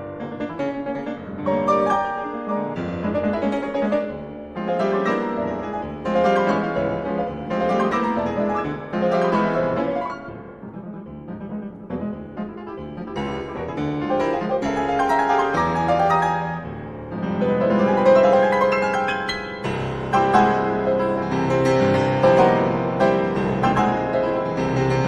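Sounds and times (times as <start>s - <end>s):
classical piano music: 0.0s - 25.0s.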